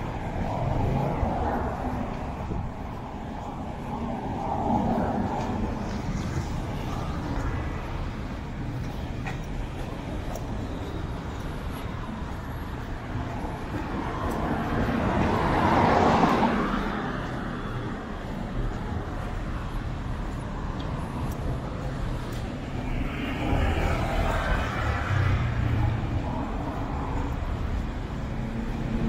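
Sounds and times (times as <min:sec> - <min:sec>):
car passing: 0:00.0 - 0:29.0
steady traffic hum: 0:00.0 - 0:29.0.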